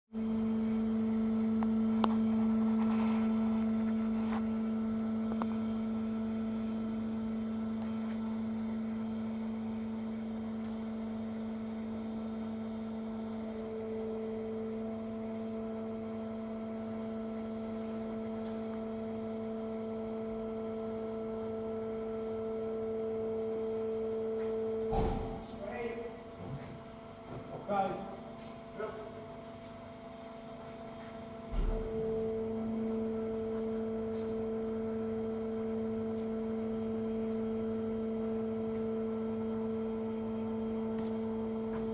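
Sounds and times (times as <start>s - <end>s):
hydraulic drive humming: 23.5s - 36.3s.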